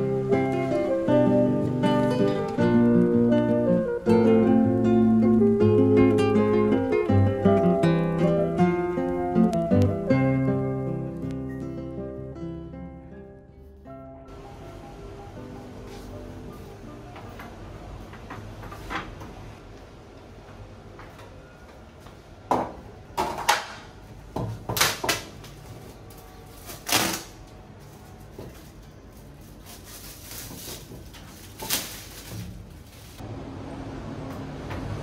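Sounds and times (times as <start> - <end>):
plastic film crinkling: 24.8 - 33.2.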